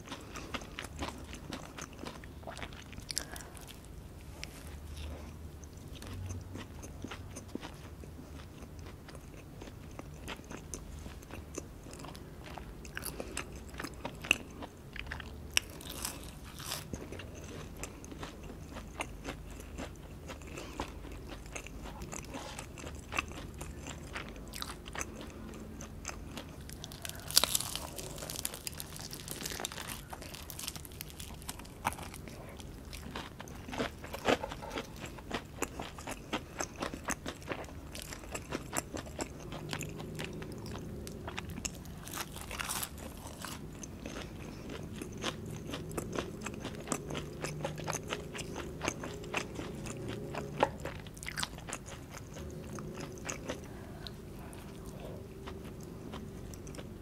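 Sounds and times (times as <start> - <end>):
chewing with crisp crunches: 0.0 - 57.0
low background hum: 0.0 - 57.0.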